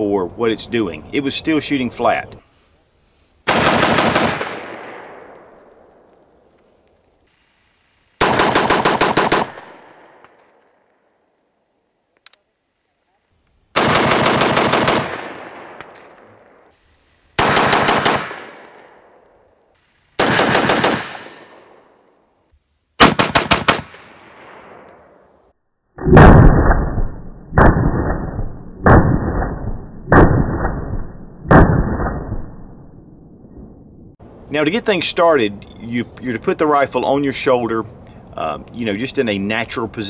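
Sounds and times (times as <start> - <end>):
rifle shots with echo: 3.5 - 6.1, 8.2 - 10.3, 13.8 - 16.7, 17.4 - 19.2, 20.2 - 22.0, 23.0 - 25.3
muffled single rifle shots: 23.0 - 25.2.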